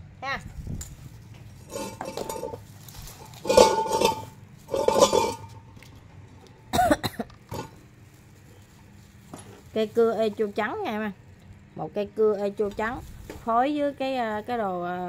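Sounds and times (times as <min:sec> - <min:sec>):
metallic clinking: 0:03.2 - 0:05.7.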